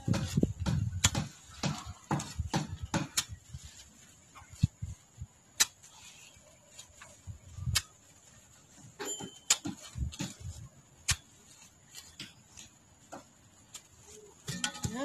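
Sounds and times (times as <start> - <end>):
digging tool chopping soil: 0.0 - 3.5, 5.6 - 5.8, 9.1 - 11.3.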